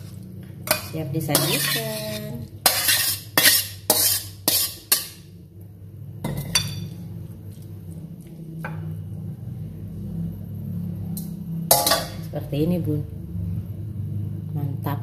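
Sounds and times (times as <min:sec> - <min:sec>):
spatula scraping metal wok: 0:00.0 - 0:05.2
wok clanking on stove: 0:00.6 - 0:05.2, 0:11.7 - 0:12.3.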